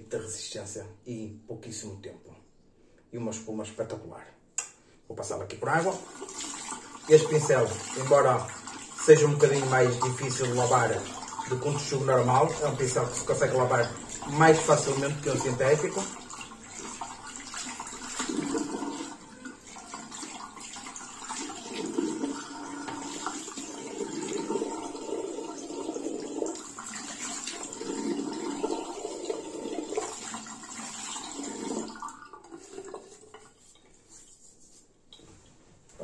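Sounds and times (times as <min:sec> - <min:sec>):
tap water running and splashing: 0:05.7 - 0:33.9.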